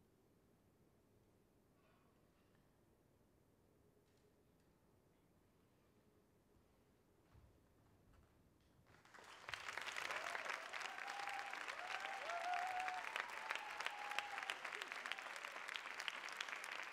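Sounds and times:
audience applauding: 0:08.9 - 0:16.9.

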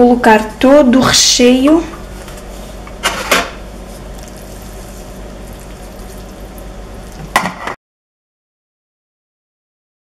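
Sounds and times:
steady low hum: 0:00.0 - 0:07.8.

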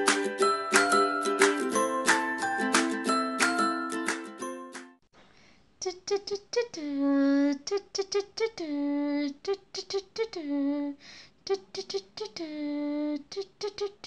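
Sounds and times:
high voice singing a sing-song tune: 0:05.8 - 0:14.0.

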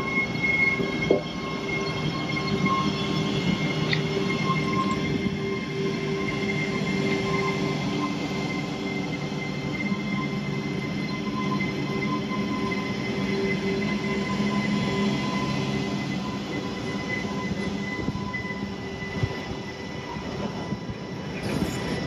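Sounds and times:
electric locomotive hum and whine: 0:00.0 - 0:22.0
wheels rolling on rails: 0:20.2 - 0:22.0.

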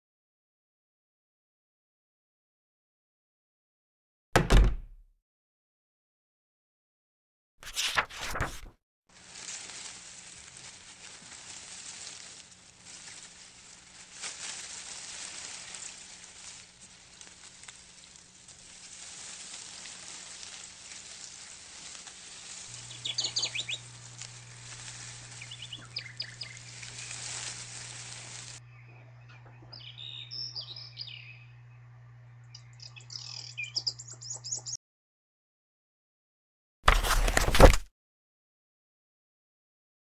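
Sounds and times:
steady hiss: 0:09.2 - 0:28.6
low hum: 0:15.9 - 0:34.1
birds chirping: 0:19.5 - 0:34.8.

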